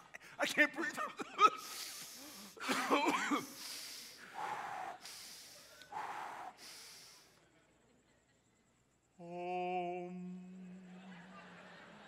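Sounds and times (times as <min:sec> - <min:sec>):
hoarse wheezing breaths: 0:01.6 - 0:02.7, 0:03.4 - 0:07.4.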